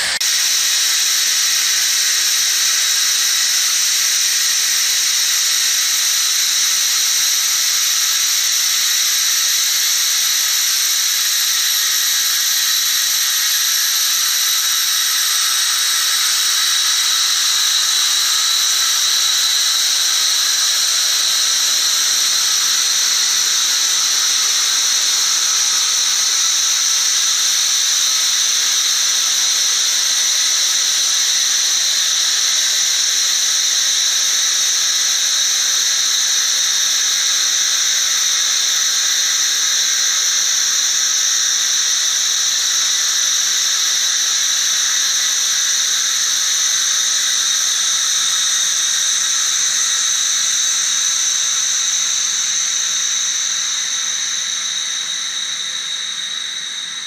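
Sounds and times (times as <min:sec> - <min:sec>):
pressurised gas hissing: 0:00.0 - 0:33.0.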